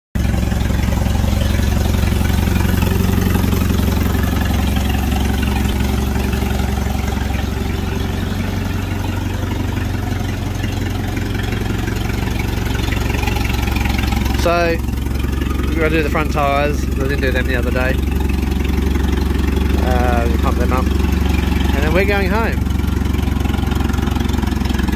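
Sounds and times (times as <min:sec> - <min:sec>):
tractor engine idling: 0:00.2 - 0:24.9.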